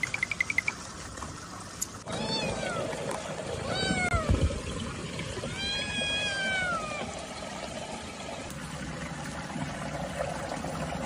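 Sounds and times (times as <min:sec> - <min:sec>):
stream trickling: 0:00.0 - 0:11.0
cat meowing: 0:02.1 - 0:02.9, 0:03.6 - 0:04.4, 0:05.5 - 0:07.1.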